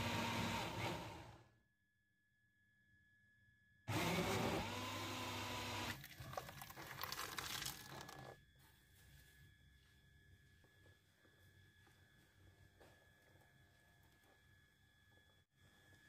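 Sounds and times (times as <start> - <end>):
electric blender motor: 0.0 - 1.5, 3.9 - 6.0
thick soup poured into metal pot: 6.0 - 8.3.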